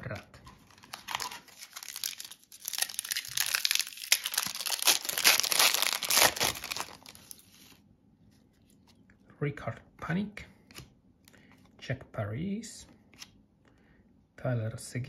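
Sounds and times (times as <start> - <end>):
foil wrapper crinkling: 0.6 - 7.8.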